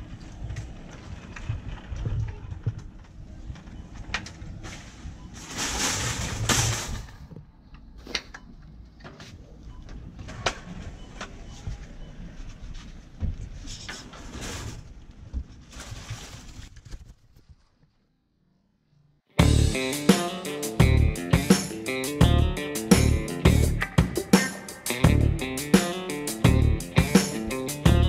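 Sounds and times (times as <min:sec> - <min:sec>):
shopping cart rattling: 0:04.6 - 0:07.2.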